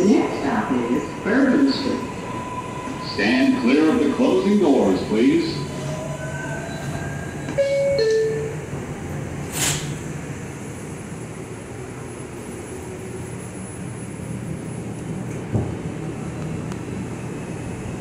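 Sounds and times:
subway car low hum: 0.0 - 18.0
two-tone door-closing chime: 7.5 - 8.6
short sharp hiss: 9.5 - 10.0.

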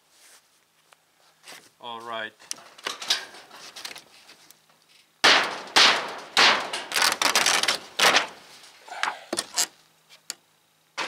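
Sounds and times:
sheet metal crunching and breaking: 2.6 - 3.6, 5.2 - 8.6.

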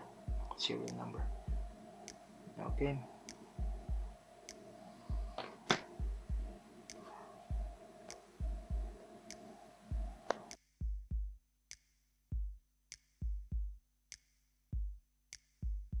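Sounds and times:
faint room noise: 0.0 - 10.6
electronic music with drum beat: 0.0 - 11.2.

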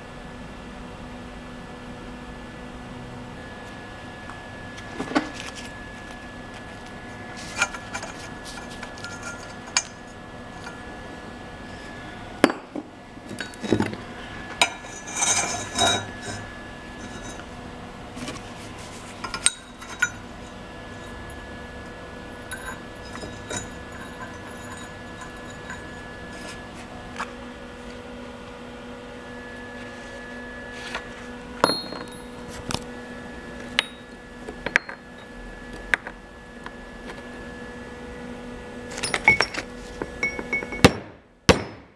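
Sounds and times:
steady hum: 0.0 - 41.9
metal tubing clinking: 7.5 - 10.8, 14.6 - 17.4, 19.2 - 21.3, 22.4 - 26.5, 39.0 - 41.0.

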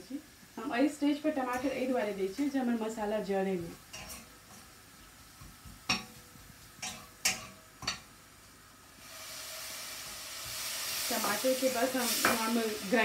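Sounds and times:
sizzling in hot pan: 0.0 - 13.0
spatula knocking on metal pan: 5.4 - 8.1.

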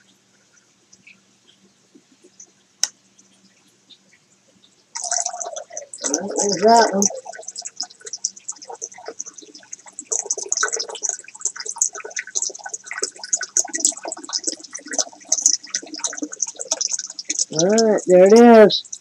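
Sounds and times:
water splashing into a tank: 5.0 - 19.0.

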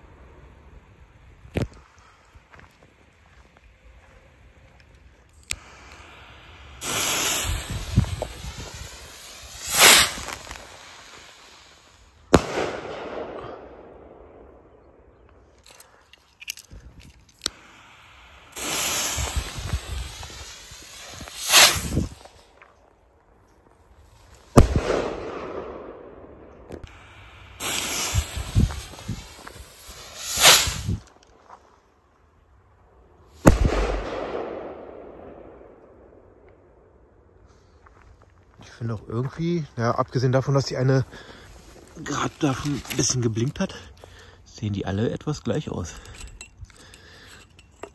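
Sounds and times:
firework rocket hissing: 5.3 - 13.9, 16.8 - 22.5, 26.7 - 31.1
firework bang echoing: 5.7 - 11.6, 12.3 - 14.6, 18.5 - 22.2, 24.5 - 26.1, 26.8 - 31.0, 33.4 - 35.8
firework bang with echo: 12.3 - 13.7.

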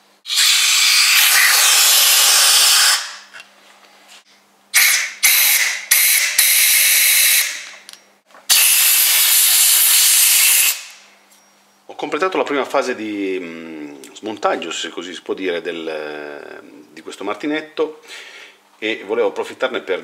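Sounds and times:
compressed air blow gun blasting: 0.2 - 3.3, 4.8 - 7.7, 8.5 - 11.0.

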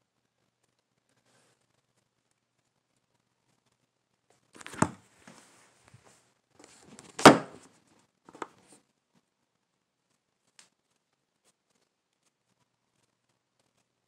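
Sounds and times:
handling rustling: 4.6 - 7.6.

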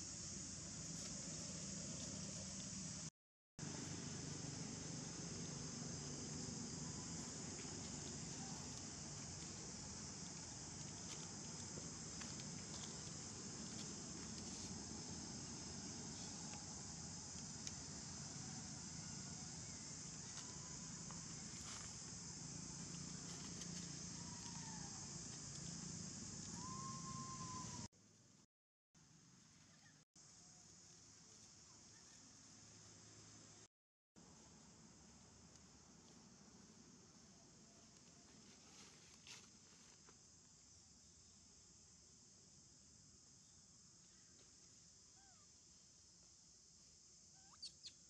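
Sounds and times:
shrill insect chorus: 0.0 - 27.9, 36.8 - 48.0
faint falling whistle: 26.5 - 27.9.

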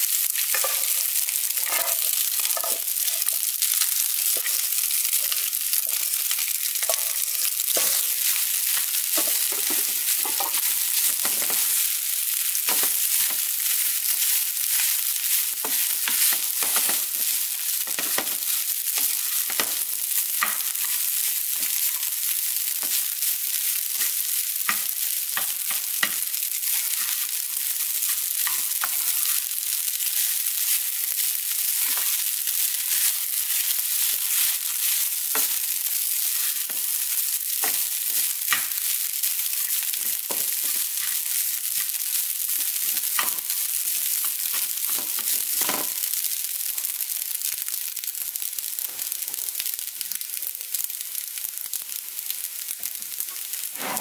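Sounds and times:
rice sizzling in oil: 0.0 - 54.0
spatula scraping and tapping pan: 0.4 - 11.9, 12.5 - 29.4, 30.1 - 38.9, 39.5 - 41.9, 42.6 - 46.0.

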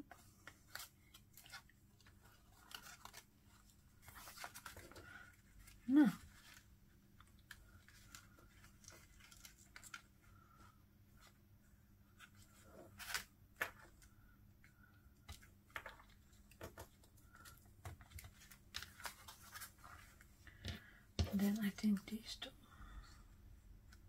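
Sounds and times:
paper pieces rustling and clicking: 0.1 - 10.1, 15.3 - 20.7.

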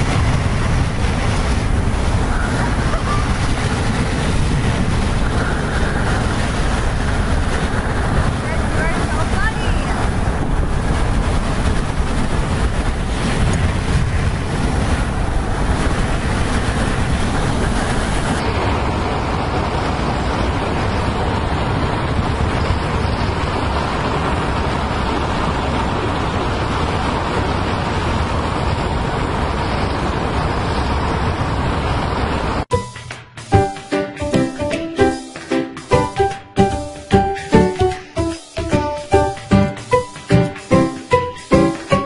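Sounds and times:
wind buffeting microphone: 0.0 - 32.7
road and car noise: 0.0 - 42.0.

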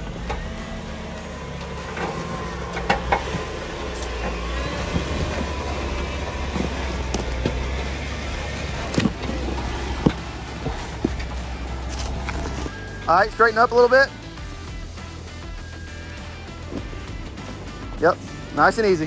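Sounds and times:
off-road vehicle engine running: 0.0 - 19.0
knocks and crunches on rocks: 2.1 - 12.7.

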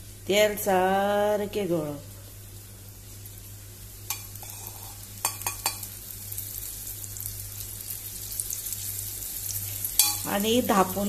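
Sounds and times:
slices sizzling in oil: 2.2 - 11.0.

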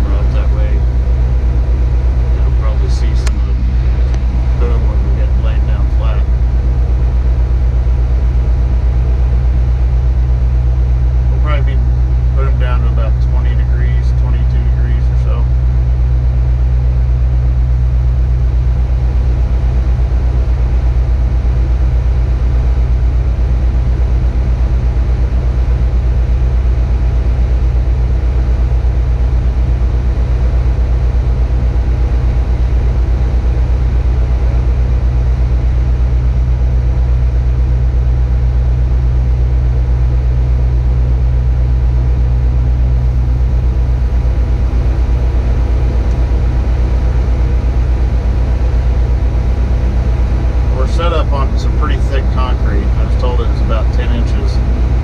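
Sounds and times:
crane diesel engine droning: 0.0 - 55.0
steady hum: 0.0 - 55.0.

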